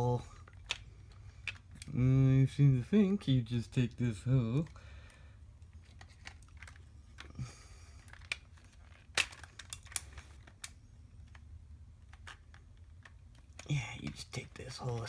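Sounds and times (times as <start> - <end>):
plastic toy parts clicking: 0.4 - 2.0, 8.0 - 15.0.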